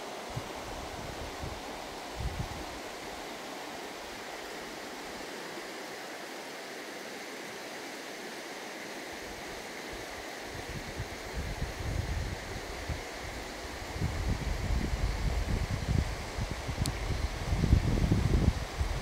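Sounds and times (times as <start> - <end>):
river rushing over stones: 0.0 - 11.3
wind buffeting microphone: 2.2 - 2.8, 13.7 - 19.0.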